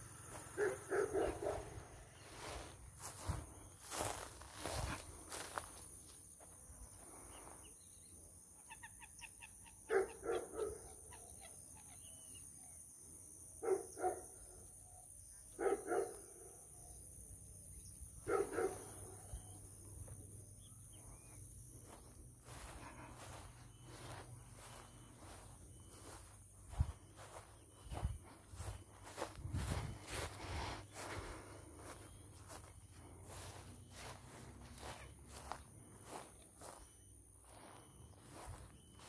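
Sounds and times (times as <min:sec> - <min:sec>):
dog barking: 0:00.6 - 0:01.8, 0:09.8 - 0:11.0, 0:13.6 - 0:14.4, 0:15.5 - 0:16.5, 0:18.2 - 0:19.3.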